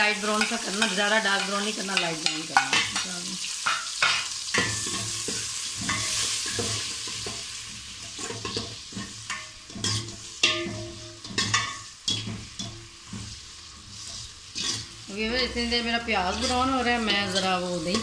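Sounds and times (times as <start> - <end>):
onions sizzling in oil: 0.0 - 18.0
ladle scraping and clinking pot: 3.6 - 15.0.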